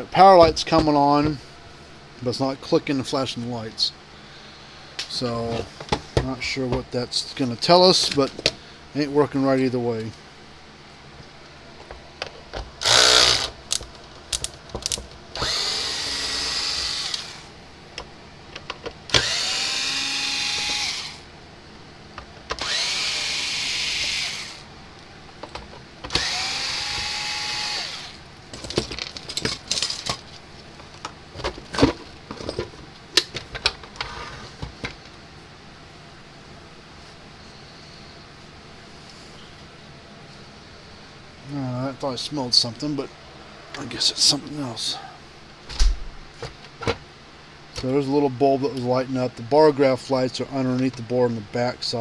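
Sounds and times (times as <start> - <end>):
electric screwdriver whirring: 12.8 - 13.6, 15.4 - 17.5, 19.1 - 21.2, 22.5 - 24.6, 26.1 - 28.2.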